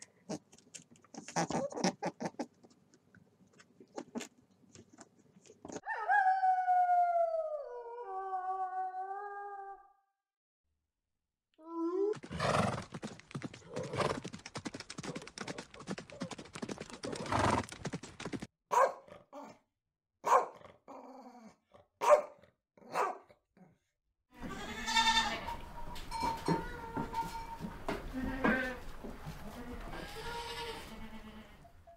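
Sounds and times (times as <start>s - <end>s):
dog barking: 18.7s - 19.2s, 20.2s - 20.7s, 22.0s - 23.3s
goat bleating: 24.4s - 25.6s, 28.1s - 31.7s.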